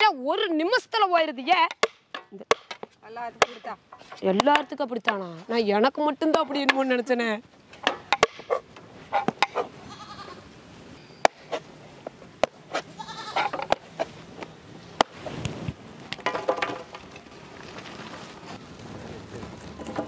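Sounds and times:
goats bleating: 9.8 - 10.5, 12.9 - 13.6.

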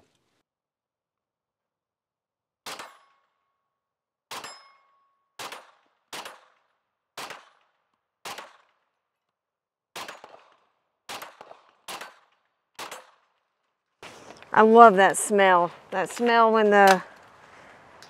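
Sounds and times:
rifle shots with echo: 5.4 - 8.8, 9.9 - 13.4.

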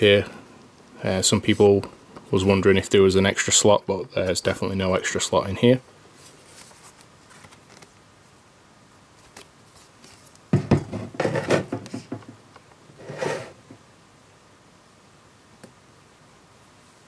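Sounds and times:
tablet knocking on wooden table: 10.5 - 12.4
clatter and rubbing: 11.0 - 12.1.

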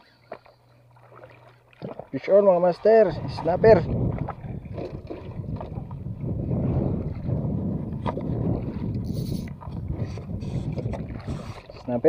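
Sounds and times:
water sloshing against boat hull: 0.0 - 12.0
wind rumbling on microphone: 2.7 - 12.0.

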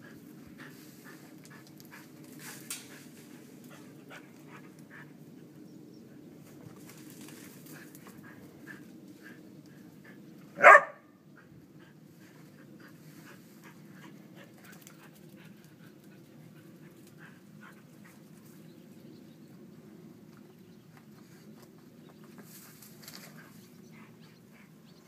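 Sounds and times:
paws digging in soil: 0.0 - 5.4, 6.4 - 10.6, 21.0 - 24.8
dog barking: 10.6 - 11.1.

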